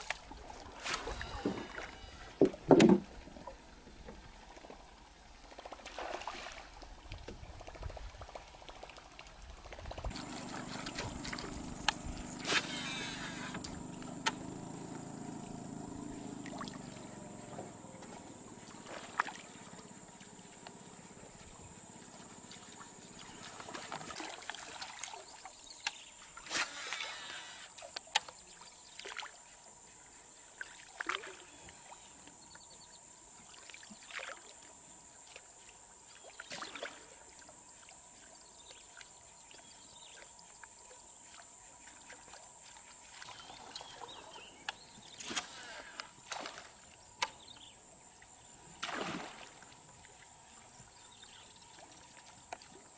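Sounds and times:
water splashing: 5.4s - 25.6s, 48.7s - 50.6s.

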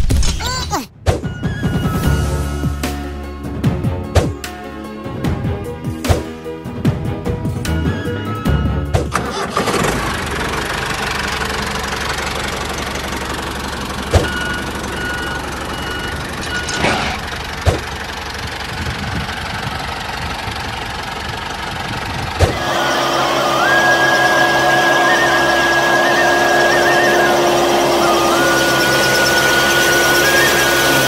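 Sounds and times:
high-pitched machine whine: 22.5s - 31.0s
small machine motor humming: 22.5s - 31.0s.

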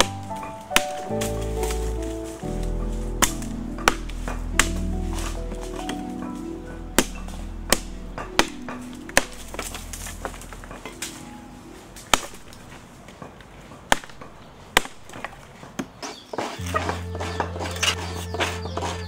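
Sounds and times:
background music: 0.0s - 12.8s, 16.6s - 19.0s
machete chopping wood: 3.2s - 4.9s, 12.1s - 12.5s, 13.9s - 18.0s.

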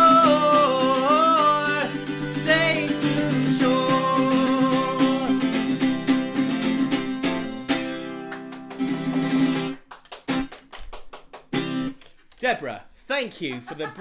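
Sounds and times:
acoustic guitar strumming: 0.0s - 10.4s, 11.5s - 12.0s.

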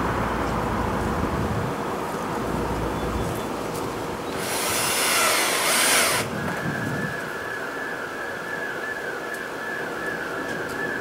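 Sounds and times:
cordless drill driving screw: 4.3s - 6.3s.

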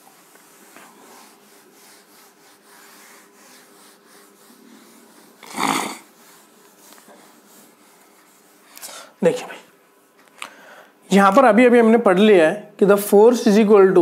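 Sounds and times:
cloth rubbing on whiteboard: 0.0s - 10.2s.

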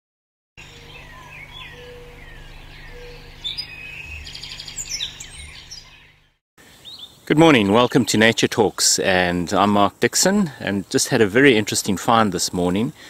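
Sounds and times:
birds calling and singing: 0.6s - 9.2s.

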